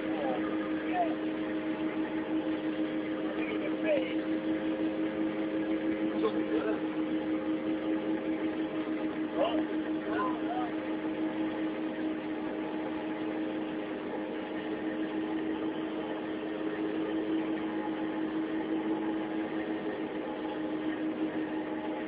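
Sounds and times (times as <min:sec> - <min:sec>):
boat engine humming: 0:00.0 - 0:22.0.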